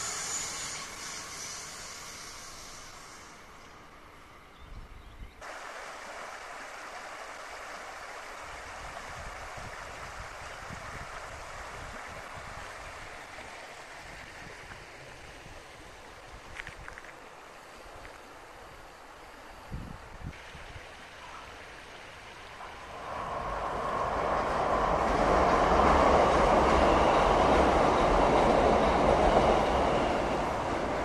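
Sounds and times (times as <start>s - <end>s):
passing train: 0.0s - 31.0s
river water rushing over riffles: 5.4s - 19.6s, 20.4s - 31.0s
wind buffeting microphone: 8.7s - 13.2s.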